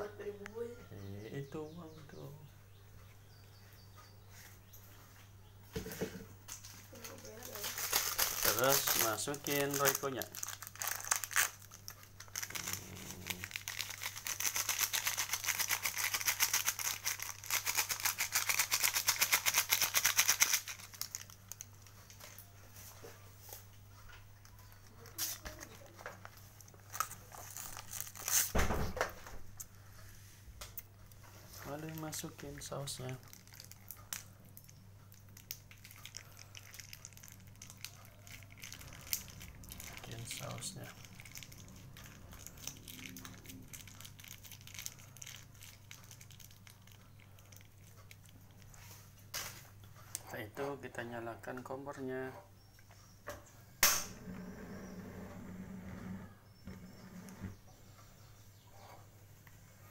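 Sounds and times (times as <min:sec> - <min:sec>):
low electrical hum: 0:00.0 - 0:59.9
seasoning packet rattling: 0:07.3 - 0:22.2, 0:35.1 - 0:48.7
sauce wet clicks and crackles: 0:33.0 - 0:48.8.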